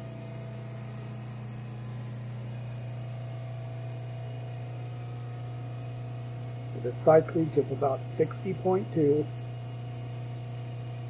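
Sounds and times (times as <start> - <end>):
generator humming: 0.0 - 11.0.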